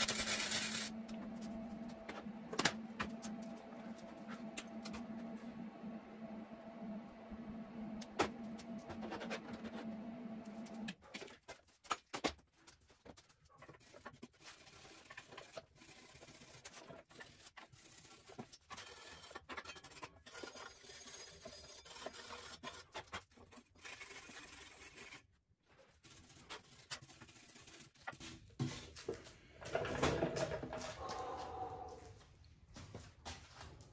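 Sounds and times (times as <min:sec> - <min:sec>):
electric scooter motor hum: 0:00.0 - 0:10.9.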